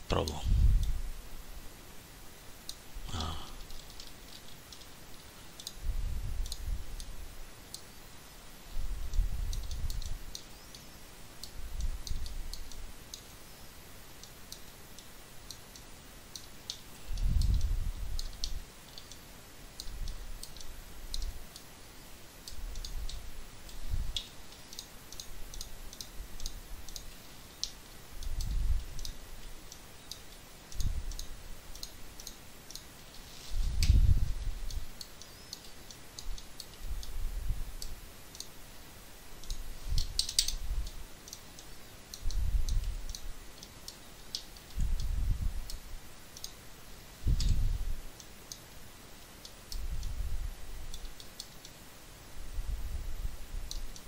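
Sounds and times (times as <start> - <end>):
mouse and keyboard clicking: 19.8 - 21.7, 22.5 - 32.9, 33.8 - 37.2, 39.4 - 45.1.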